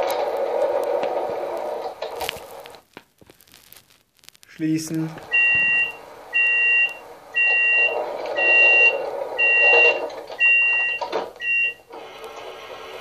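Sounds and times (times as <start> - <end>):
two-tone warning beeps: 5.3 - 11.9.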